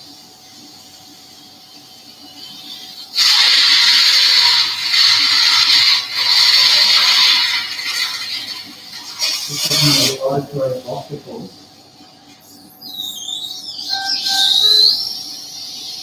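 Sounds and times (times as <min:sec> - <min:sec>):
surgical suction hissing: 0:02.3 - 0:11.5.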